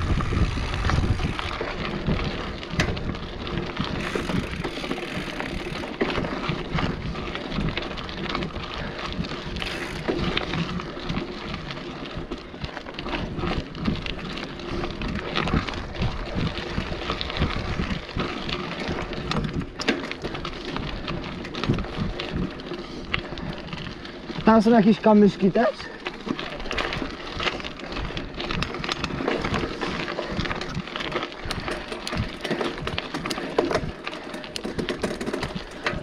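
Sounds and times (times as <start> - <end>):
wind buffeting microphone: 0.0 - 25.1
bike rattling: 0.0 - 36.0
bike tyres rolling over dirt: 0.0 - 36.0.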